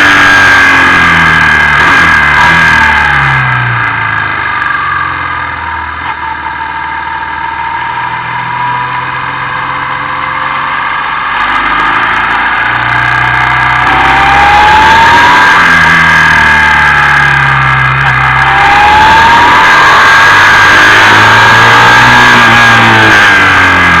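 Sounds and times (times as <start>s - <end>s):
motorcycle engine: 0.0s - 24.0s.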